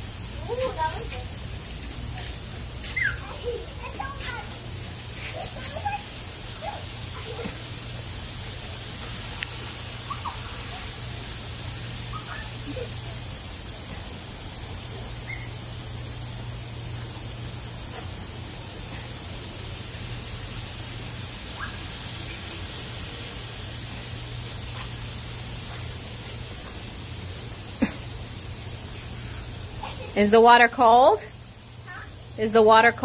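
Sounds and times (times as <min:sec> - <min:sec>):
lawn sprinklers hissing: 0:00.0 - 0:33.0.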